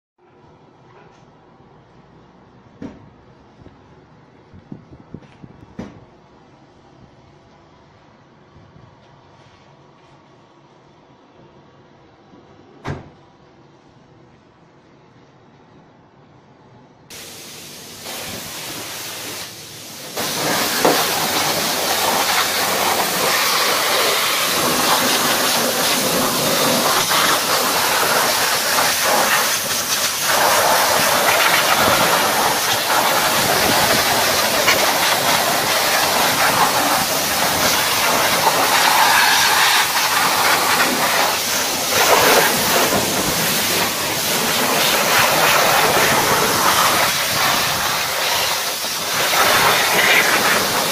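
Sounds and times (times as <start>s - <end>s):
high-pressure water jet spraying: 17.1s - 50.9s.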